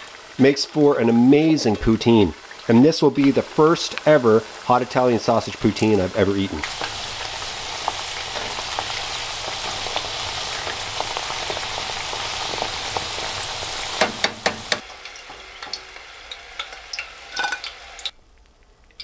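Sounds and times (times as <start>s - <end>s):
fries sizzling in hot oil: 0.0s - 19.0s
fork tapping: 14.0s - 14.8s.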